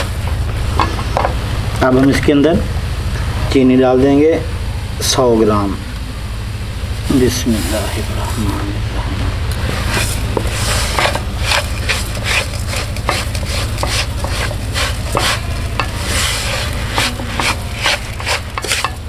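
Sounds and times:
wooden spatula scraping a pan: 0:09.7 - 0:19.0.

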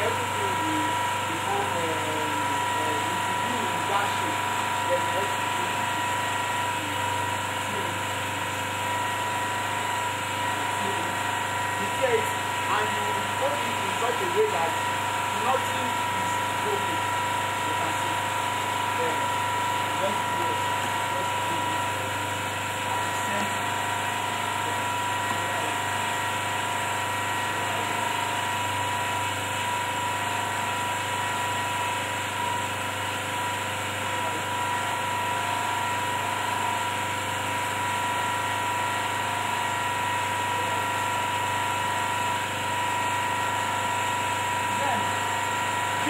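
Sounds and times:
steady machine hum: 0:00.0 - 0:46.0.

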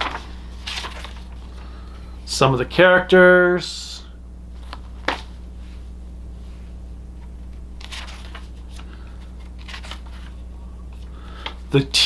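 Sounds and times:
paper pages rustling: 0:00.0 - 0:01.5, 0:07.2 - 0:11.6
low electrical hum: 0:00.0 - 0:12.0.

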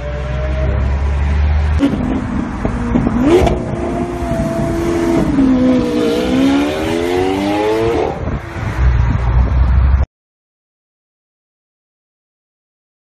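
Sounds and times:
car engine accelerating: 0:00.0 - 0:09.8
low road rumble: 0:00.0 - 0:10.1.

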